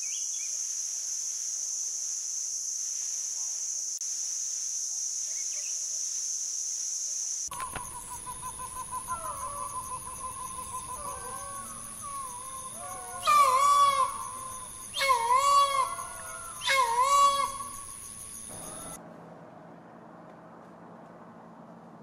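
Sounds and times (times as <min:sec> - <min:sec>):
high insect whine: 0:00.0 - 0:19.0
peafowl calling loudly: 0:07.5 - 0:19.0
soft bird calls: 0:07.5 - 0:19.0.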